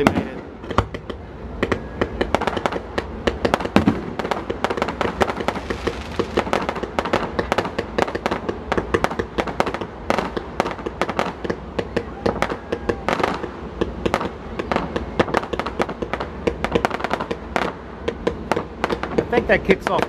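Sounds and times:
fireworks bangs and crackles: 0.0s - 20.0s.

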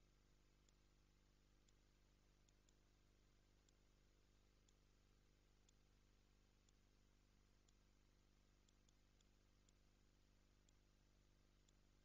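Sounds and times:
faint steady hum: 0.0s - 12.0s
tiny ticks: 0.6s - 0.9s, 1.6s - 5.0s, 5.6s - 5.9s, 6.6s - 7.0s, 7.6s - 8.0s, 8.6s - 10.0s, 10.6s - 10.9s, 11.6s - 12.0s.

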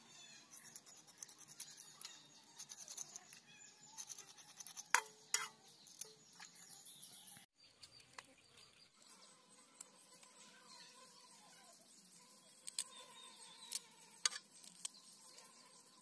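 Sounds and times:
knife scraping fish scales: 0.5s - 6.5s.

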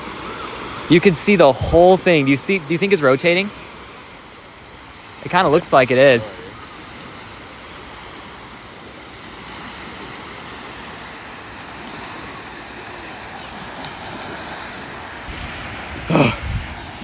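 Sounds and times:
waves washing onto beach: 0.0s - 17.0s
wind on microphone: 13.7s - 17.0s.

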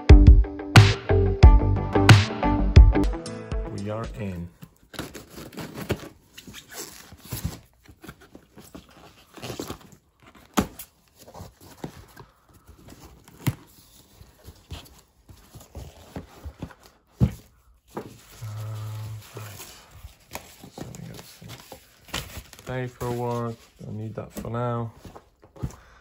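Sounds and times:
packaging rustling and tearing: 4.7s - 25.4s.

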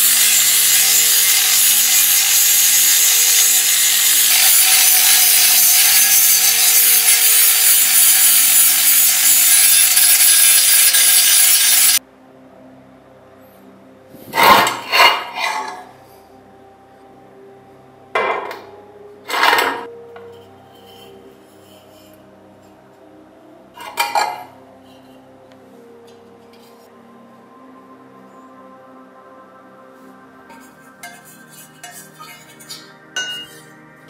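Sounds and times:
angle grinder sanding metal: 0.0s - 12.0s, 30.5s - 33.7s.

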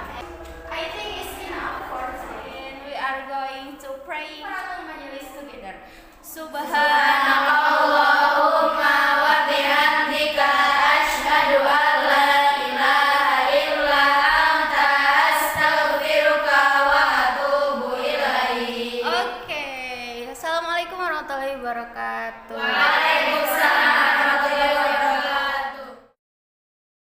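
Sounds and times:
girls singing in unison: 0.0s - 3.8s, 6.3s - 19.5s, 22.5s - 26.2s.

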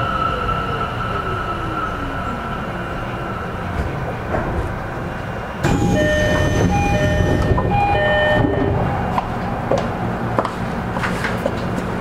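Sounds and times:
electric train running on rails: 0.0s - 12.0s
ringing tones: 5.6s - 8.8s.

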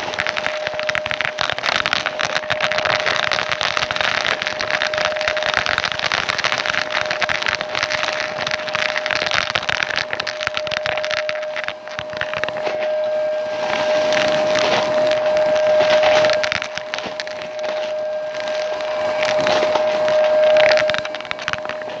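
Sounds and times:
vacuum cleaner motor whine: 12.1s - 21.9s.

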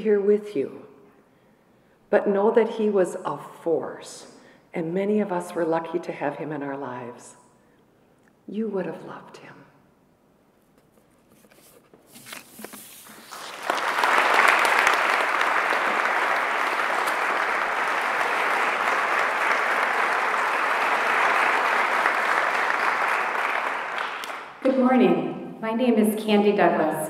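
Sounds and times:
audience applauding: 13.1s - 24.6s.

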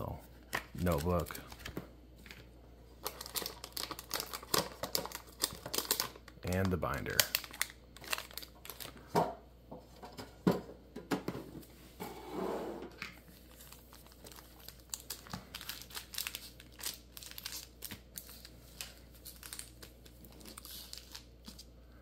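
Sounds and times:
foil wrappers crinkling: 0.4s - 9.1s, 13.2s - 21.8s.

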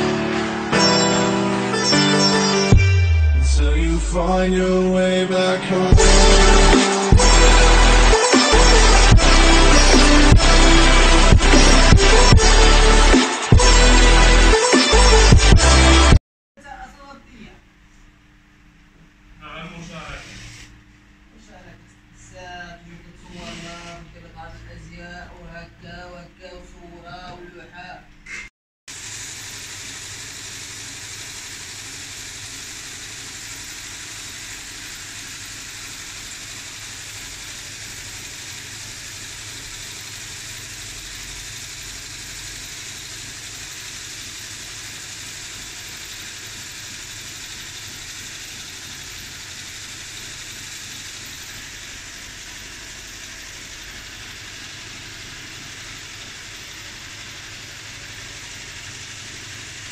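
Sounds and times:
low hum: 2.7s - 15.6s.

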